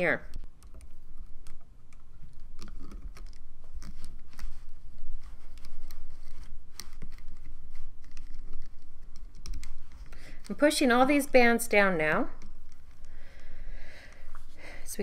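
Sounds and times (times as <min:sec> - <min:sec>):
plastic clicks and scratches: 0:00.3 - 0:10.6.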